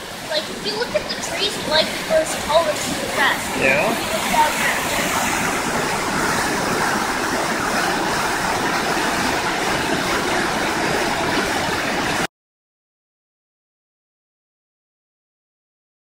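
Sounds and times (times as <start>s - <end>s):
creek rushing over boulders: 0.0s - 12.3s.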